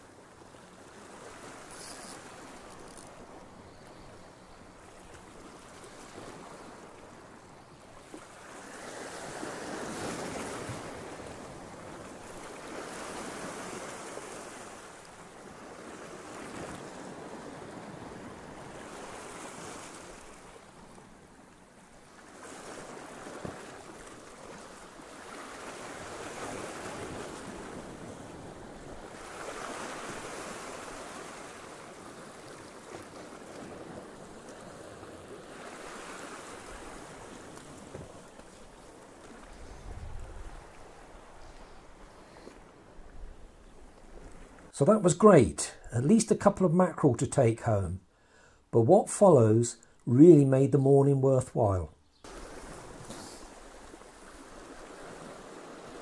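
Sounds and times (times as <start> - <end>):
sea waves breaking on rocks: 4.8 - 7.2, 8.0 - 21.0, 22.0 - 42.9, 52.3 - 56.0.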